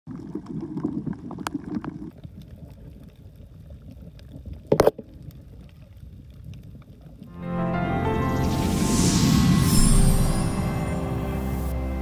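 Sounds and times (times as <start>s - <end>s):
short loud burst of noise: 7.4s - 12.0s.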